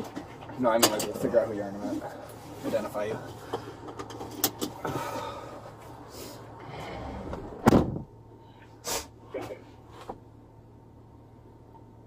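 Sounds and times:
car door slamming: 7.6s - 8.1s.

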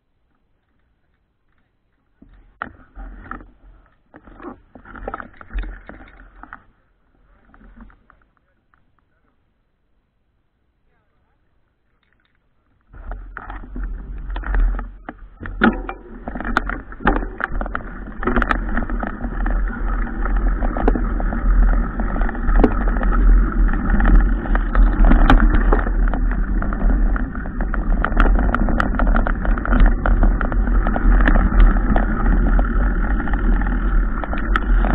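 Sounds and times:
bike rattles and knocks: 0.6s - 9.0s, 11.9s - 34.9s
wind rumble on microphone: 12.9s - 34.9s.

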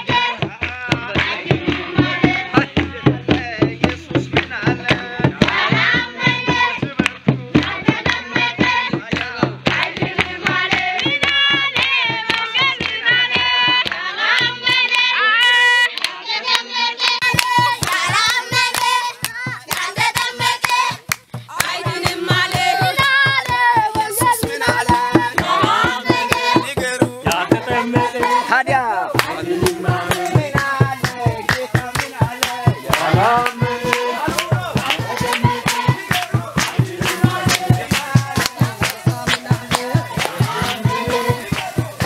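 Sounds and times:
group singing: 0.0s - 42.0s
rhythmic hand clapping: 0.0s - 42.0s.

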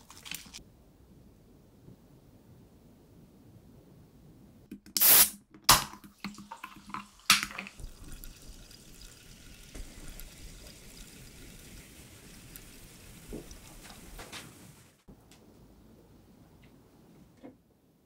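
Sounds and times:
carbonation fizzing: 0.0s - 0.6s, 5.0s - 15.1s
cola pouring over ice: 0.0s - 0.6s, 5.8s - 14.0s
soda can cracking open with hiss: 4.9s - 8.3s.

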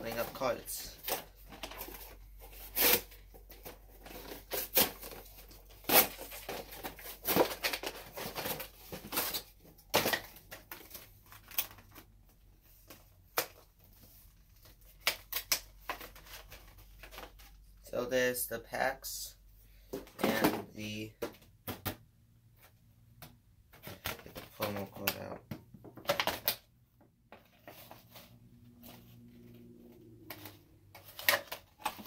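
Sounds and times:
cardboard tearing and rustling: 0.9s - 12.1s, 30.2s - 32.0s
packaging clicks and crinkles: 0.9s - 12.1s, 30.3s - 32.0s.

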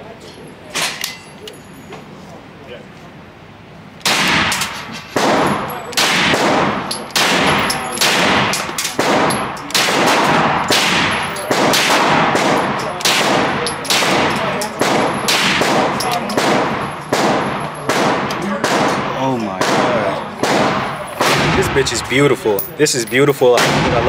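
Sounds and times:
rifle single shots with echo: 4.0s - 22.1s, 23.6s - 24.0s.

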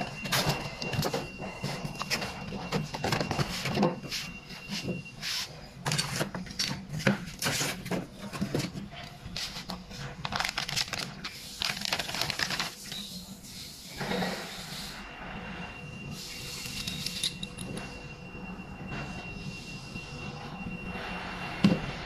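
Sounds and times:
plastic bags crinkling: 10.2s - 12.8s.

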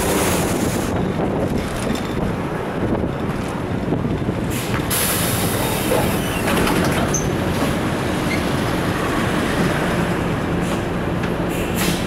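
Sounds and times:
bus engine and road noise: 0.0s - 12.0s
bodywork clicks and rattles: 1.4s - 2.4s, 6.0s - 7.8s.

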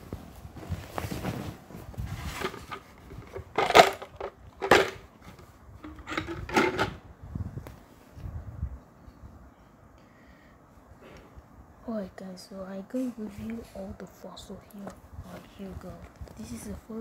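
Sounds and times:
rustling and bumping: 0.0s - 7.0s.

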